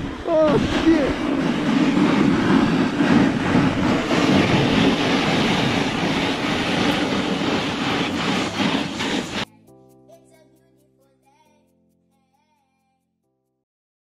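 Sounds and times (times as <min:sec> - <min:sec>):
wind buffeting microphone: 0:00.0 - 0:09.4
snowboard scraping over snow: 0:00.0 - 0:09.5.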